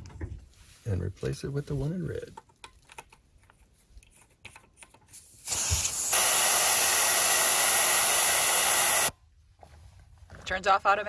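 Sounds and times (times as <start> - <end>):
air hissing out of a tire: 5.2 - 9.1.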